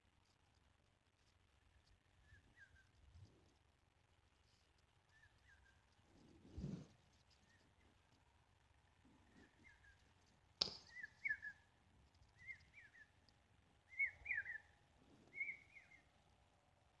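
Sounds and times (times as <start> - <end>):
bird chirping: 1.6 - 3.2, 4.5 - 6.0, 7.3 - 8.1, 9.2 - 16.2.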